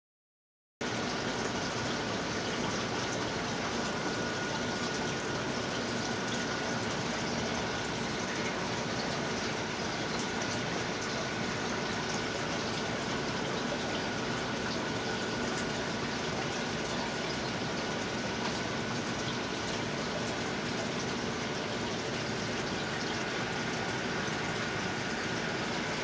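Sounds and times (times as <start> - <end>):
faint pump hum: 0.8 - 26.0
water rushing in aquarium: 0.8 - 26.0.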